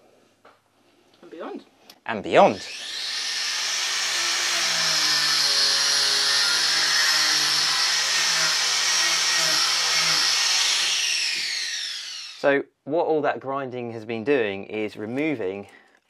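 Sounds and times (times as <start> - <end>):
power grinder grinding: 2.6 - 12.5.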